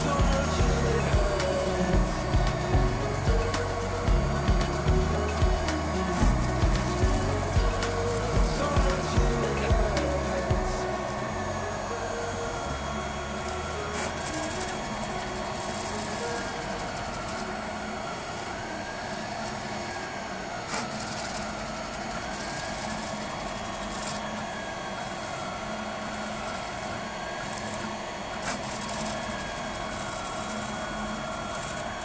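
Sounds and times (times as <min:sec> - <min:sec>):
cooling fan whirring: 0:00.0 - 0:32.0
stepper motors whining: 0:00.0 - 0:32.0.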